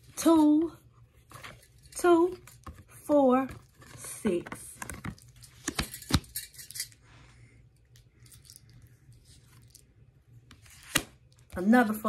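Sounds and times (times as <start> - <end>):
cards rustling: 1.2 - 6.8, 10.5 - 11.2
cards snapping: 10.6 - 11.2.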